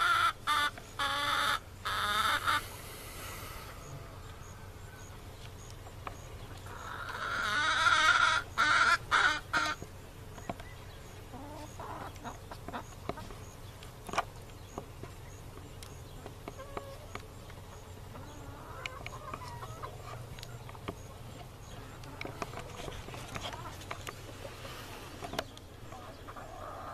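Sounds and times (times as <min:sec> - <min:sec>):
drawn-out chicken call: 0:00.0 - 0:14.2, 0:16.0 - 0:26.9
chickens clucking: 0:00.0 - 0:26.9.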